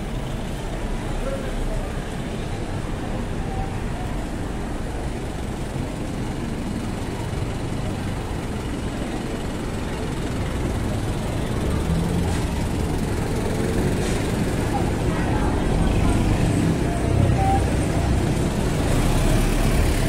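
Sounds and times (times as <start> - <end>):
vehicle engines running: 0.0 - 20.0.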